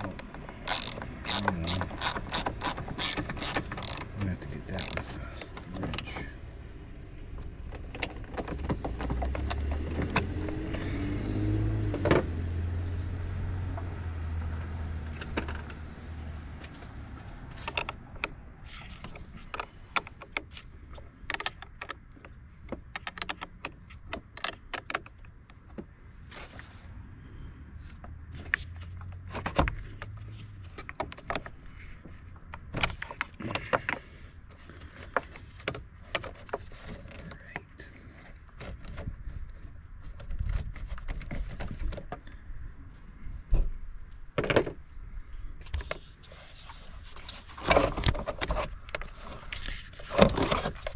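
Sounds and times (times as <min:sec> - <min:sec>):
ratchet wrench clicking: 0:00.0 - 0:04.2, 0:04.8 - 0:05.1
vehicle low rumble: 0:00.0 - 0:50.9.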